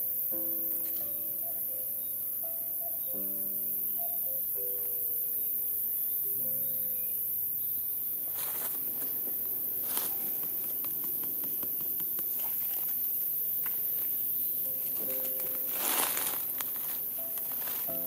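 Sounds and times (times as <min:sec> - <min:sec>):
dry leaves and twigs rustling: 0:00.6 - 0:02.1, 0:07.8 - 0:18.0.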